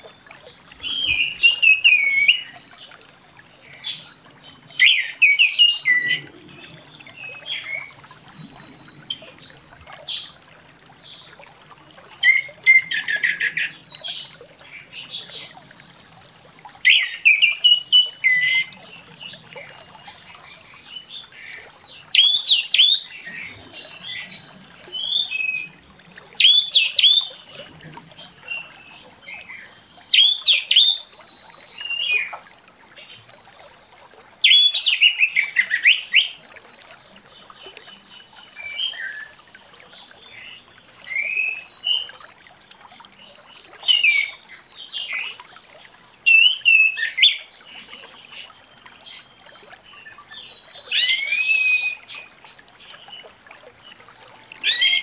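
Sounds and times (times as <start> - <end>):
thrush whistling song: 0.8 - 2.5.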